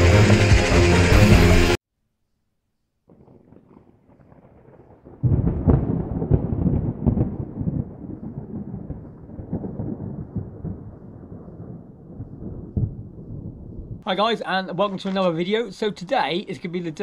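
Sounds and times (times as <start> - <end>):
thunder rumble and clap: 3.1 - 14.0.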